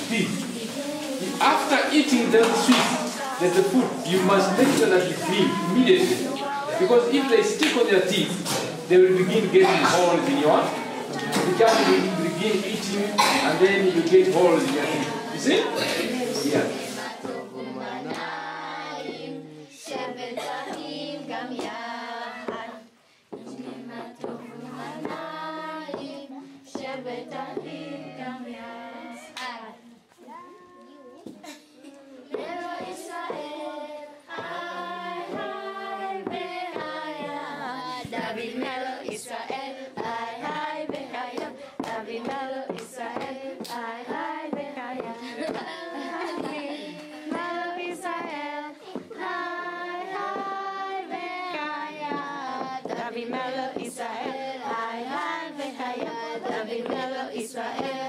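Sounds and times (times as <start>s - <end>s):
children singing in unison: 0.0s - 58.0s.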